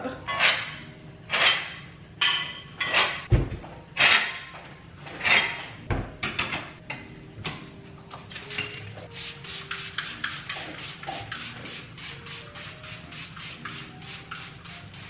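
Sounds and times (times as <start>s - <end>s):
spraying and wiping: 8.1s - 15.0s.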